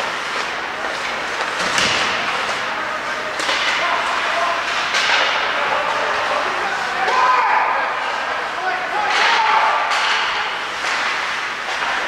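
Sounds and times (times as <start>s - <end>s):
murmur of spectators talking: 0.0s - 10.7s
hockey sticks and puck knocks: 0.2s - 2.7s, 3.3s - 5.6s, 9.0s - 12.0s.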